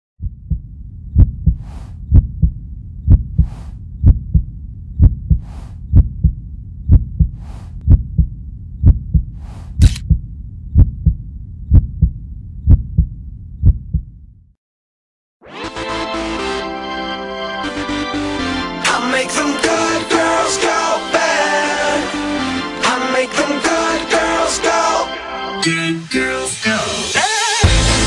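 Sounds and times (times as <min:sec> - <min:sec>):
heartbeat thumps: 0:00.2 - 0:14.3
low rumble: 0:00.2 - 0:14.5.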